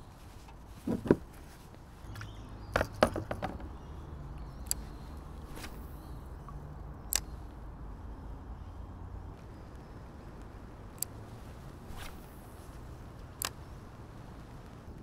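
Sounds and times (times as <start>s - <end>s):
clicks and knocks on plastic: 0.8s - 1.3s, 2.8s - 3.8s.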